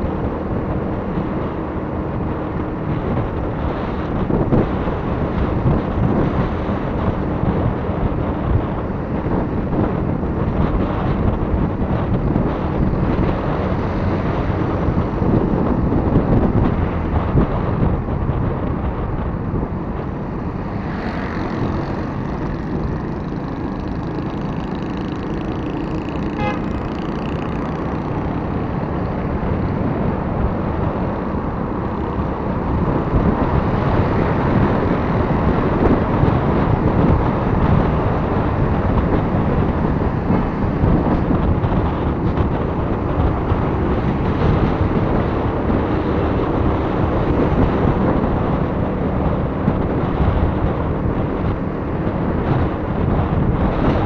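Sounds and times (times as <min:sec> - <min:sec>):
motorcycle engine: 0:00.0 - 0:54.0
road noise: 0:00.0 - 0:54.0
wind noise: 0:00.0 - 0:54.0
vehicle horn: 0:26.3 - 0:26.9.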